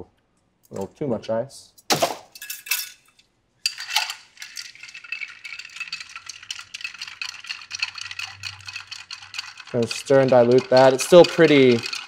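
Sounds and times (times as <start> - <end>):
ice clinking in glass: 3.7 - 12.0.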